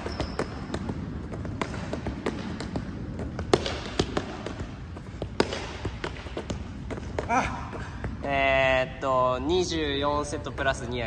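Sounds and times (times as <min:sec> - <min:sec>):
football taps while juggling: 0:00.0 - 0:08.5.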